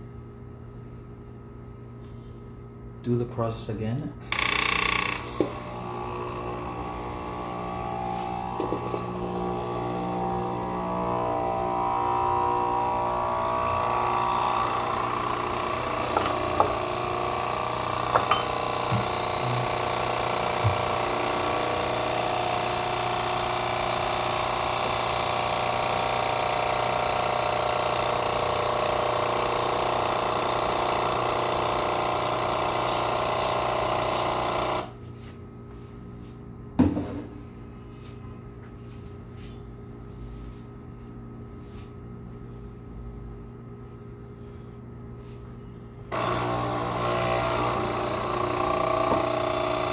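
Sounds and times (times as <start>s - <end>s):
coffee machine pump buzzing: 4.2s - 35.1s, 42.8s - 49.9s
knock: 36.8s - 37.3s.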